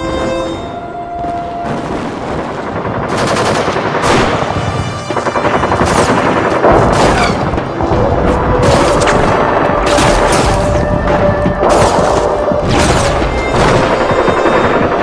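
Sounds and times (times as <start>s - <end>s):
machine-gun fire: 2.2s - 7.6s, 11.6s - 15.0s.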